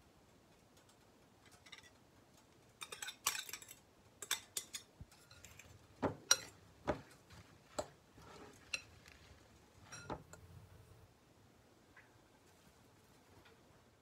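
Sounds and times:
metal spoon clinking on glass bowl: 2.8 - 5.6, 6.3 - 6.6, 9.8 - 10.4.

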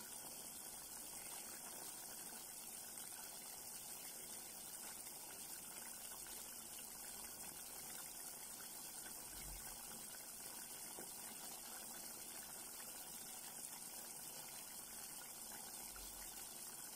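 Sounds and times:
pot simmering and bubbling: 0.0 - 16.9.

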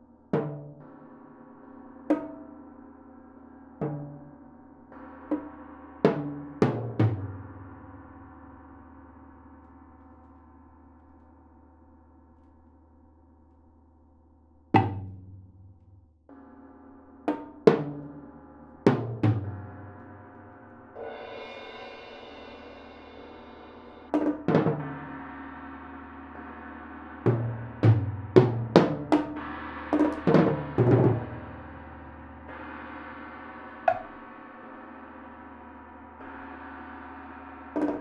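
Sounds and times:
tom-toms struck: 27.2 - 34.7
tam-tam metallic hum: 33.8 - 34.3.

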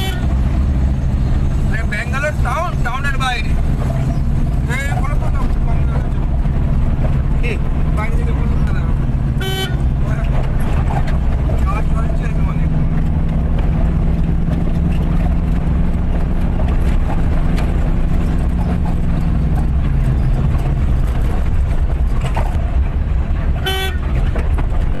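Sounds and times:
vehicle horn toot: 0.0 - 0.3, 9.4 - 9.9, 23.6 - 24.1
car engine and road noise: 0.0 - 25.0.

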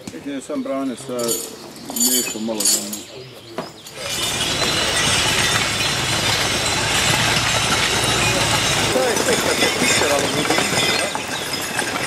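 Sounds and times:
continuous rattling clatter: 0.9 - 12.0
vehicle engine running: 4.0 - 12.0.

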